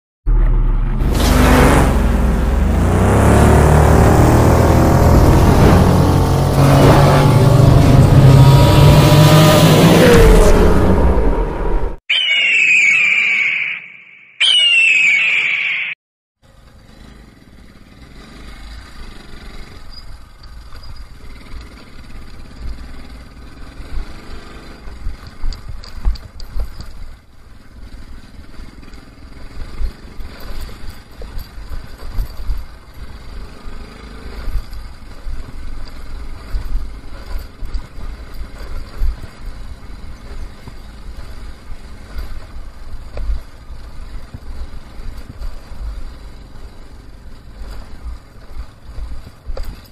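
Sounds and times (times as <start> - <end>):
motorcycle engine running: 0.3 - 10.3, 16.4 - 49.9
wind rumble and road jolts: 1.0 - 12.0, 18.0 - 49.9.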